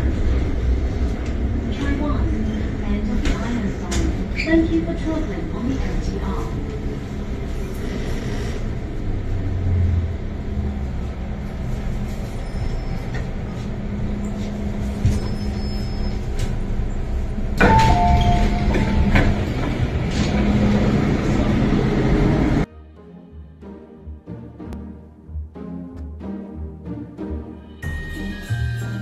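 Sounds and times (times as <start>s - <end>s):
electric train hum: 0.0s - 22.7s
train rushing noise: 0.0s - 22.7s.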